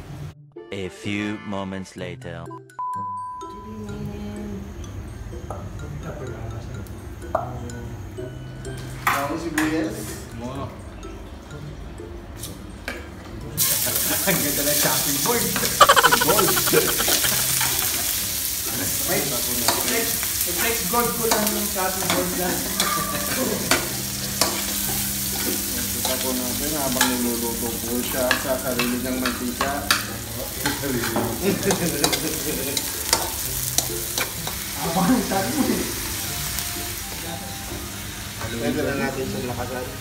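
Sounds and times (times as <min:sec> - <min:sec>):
onions sizzling in hot oil: 0:13.6 - 0:40.0.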